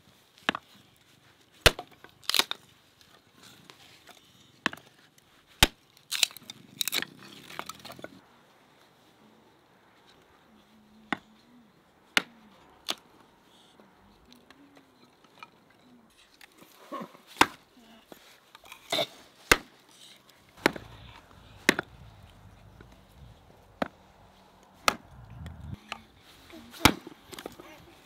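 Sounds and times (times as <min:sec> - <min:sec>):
hatchet chopping kindling: 0:19.4 - 0:19.8, 0:20.6 - 0:26.1, 0:26.7 - 0:27.6.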